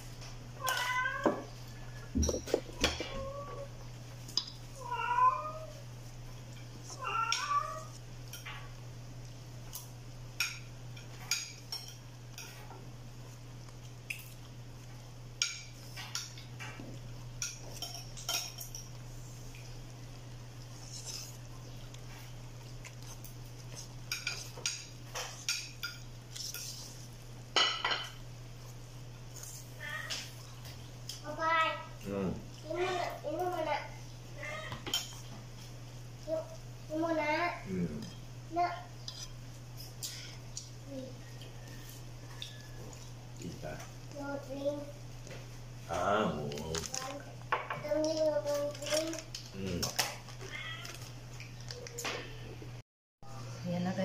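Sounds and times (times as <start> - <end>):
cat meowing: 0.6 - 1.5, 4.8 - 5.7, 7.0 - 7.9, 50.4 - 51.1.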